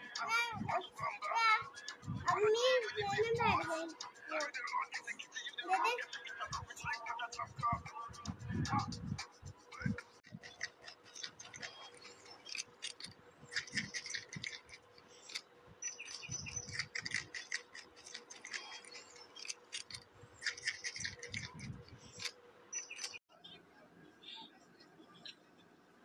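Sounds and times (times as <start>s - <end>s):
faint steady hum: 0.0s - 26.0s
animal chewing and crunching: 10.2s - 23.2s.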